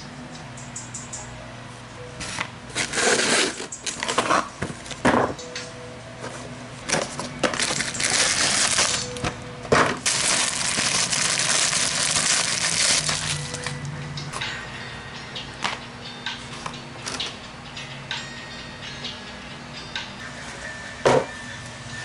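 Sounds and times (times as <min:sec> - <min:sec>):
plastic wrapping crinkling: 0:07.0 - 0:09.2, 0:10.0 - 0:13.8.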